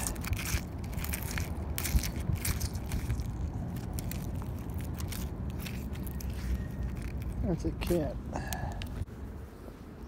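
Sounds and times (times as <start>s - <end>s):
fingers rubbing shells: 0.0s - 7.9s
shells clicking and crackling: 0.0s - 8.0s
steady low rumble: 0.0s - 10.0s.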